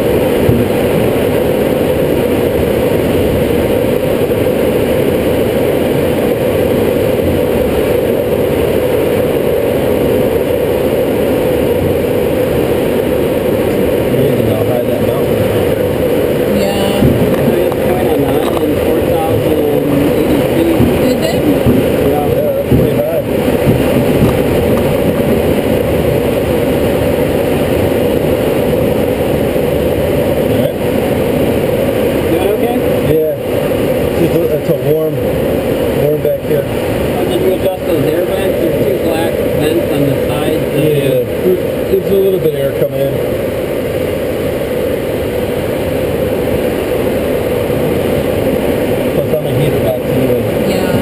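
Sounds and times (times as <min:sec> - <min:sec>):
wind rushing over glider: 0:00.0 - 0:34.4.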